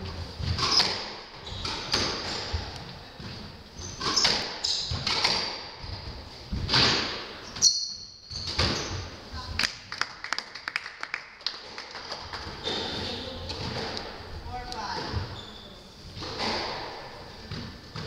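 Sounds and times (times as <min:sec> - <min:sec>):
shoes squeaking on wooden floor: 0:00.4 - 0:09.5, 0:12.5 - 0:13.8, 0:14.8 - 0:16.6.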